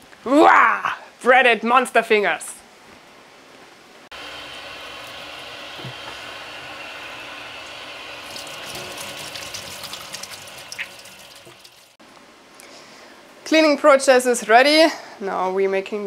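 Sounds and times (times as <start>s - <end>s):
tap water running into sink: 5.0s - 12.0s.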